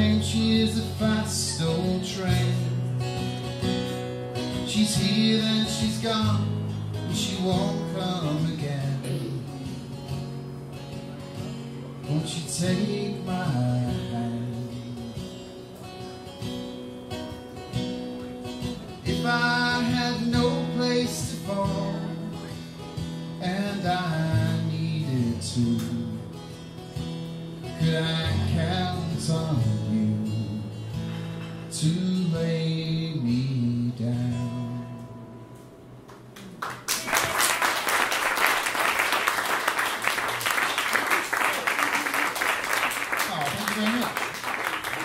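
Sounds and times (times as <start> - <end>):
man singing: 0.0 - 3.0, 4.6 - 9.6, 12.0 - 15.2, 19.0 - 22.6, 23.3 - 26.3, 27.6 - 30.8, 31.7 - 35.2
strummed acoustic guitar: 0.0 - 36.3
audience applause: 36.4 - 45.0.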